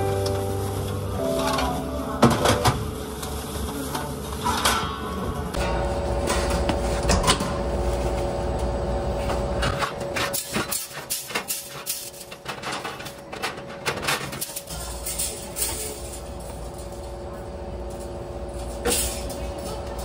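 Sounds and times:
metal racks clanking: 0.0s - 3.0s, 9.2s - 20.0s
steady machine hum: 0.0s - 20.0s.

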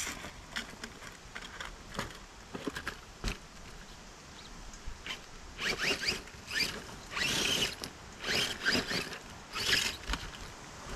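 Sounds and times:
tyres scrabbling on dirt and rock: 0.0s - 4.0s, 5.0s - 10.9s
rc car motor whining: 5.0s - 10.5s.

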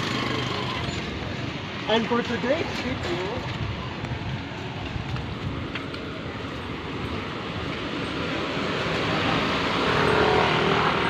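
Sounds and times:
vehicle engine approaching: 0.0s - 1.7s, 6.1s - 11.0s
street traffic noise: 0.0s - 11.0s.

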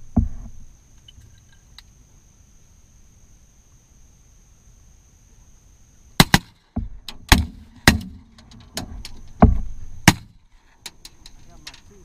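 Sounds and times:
shotgun shots: 6.2s - 6.6s, 7.3s - 8.2s, 10.0s - 10.4s.

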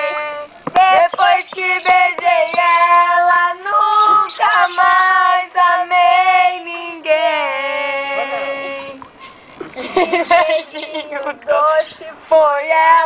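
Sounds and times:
woman singing: 0.0s - 9.0s, 9.9s - 13.0s.

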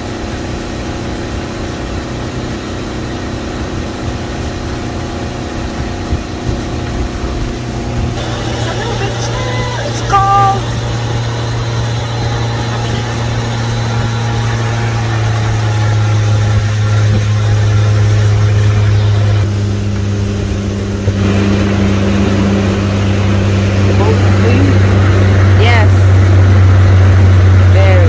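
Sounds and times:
outboard motor droning: 0.0s - 28.0s
wind on microphone: 3.6s - 8.4s.

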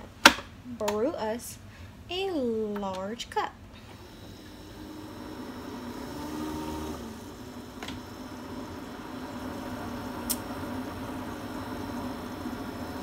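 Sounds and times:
coffee maker pump humming: 3.8s - 13.0s.

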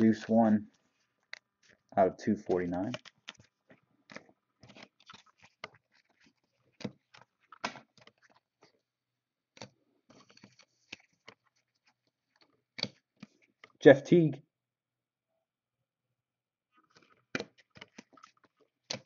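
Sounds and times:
cards clicking and rustling: 0.0s - 8.8s, 9.5s - 13.8s, 16.8s - 19.0s.

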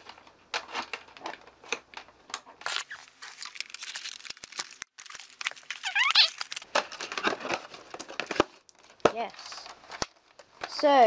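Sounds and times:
packaging crinkling and tearing: 2.6s - 10.8s.

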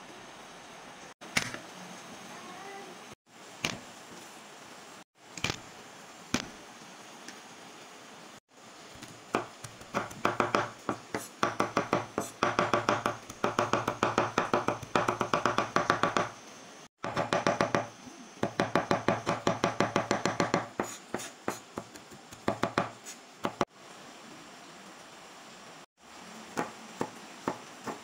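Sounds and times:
knife chopping on cutting board: 9.3s - 16.3s, 17.0s - 23.6s.

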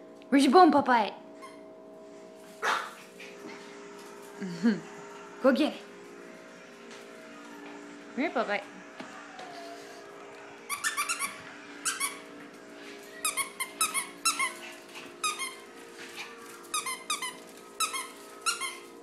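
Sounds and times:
squeaky dog toy squeaking: 10.7s - 12.2s.

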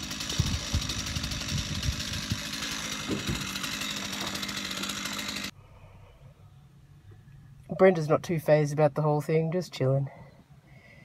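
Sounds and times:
chainsaw engine buzzing: 0.0s - 5.6s.

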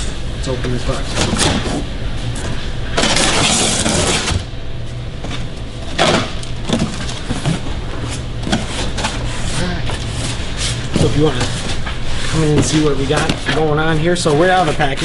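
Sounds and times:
packing tape being cut: 3.0s - 4.5s.

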